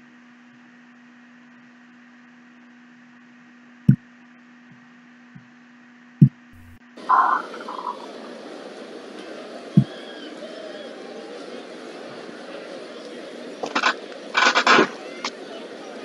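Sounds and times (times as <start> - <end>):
faint electrical hum: 0.0 - 9.8
hissy stream audio: 6.6 - 16.0.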